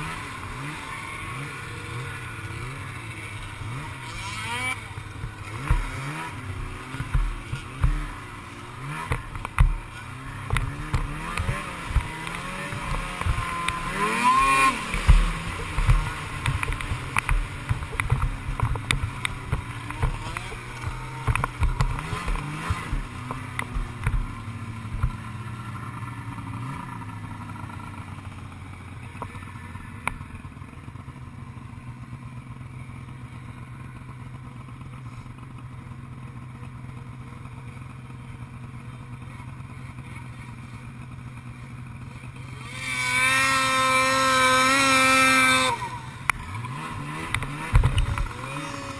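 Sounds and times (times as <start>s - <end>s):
snowmobile engine revving: 0.0s - 30.7s, 39.1s - 48.9s
sharp thumps: 5.2s - 8.3s, 8.9s - 25.2s.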